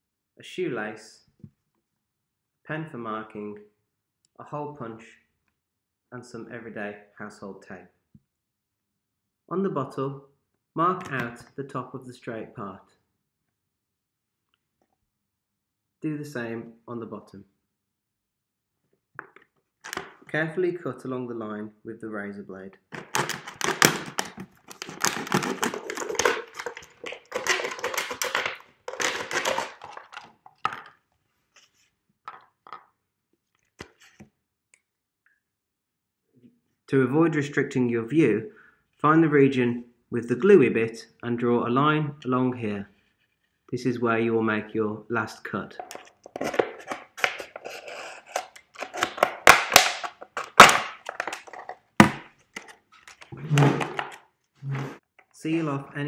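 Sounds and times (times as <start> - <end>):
plastic cracking: 19.2 - 20.2, 22.9 - 31.0, 45.8 - 54.3
knife cutting plastic bottle: 23.0 - 30.9, 45.8 - 54.9.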